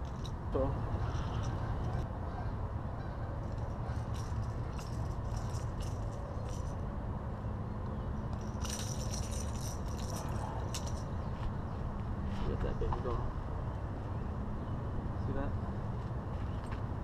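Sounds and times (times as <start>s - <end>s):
metal hooks clicking and rattling: 0.0s - 2.0s, 3.4s - 6.8s, 8.2s - 11.2s.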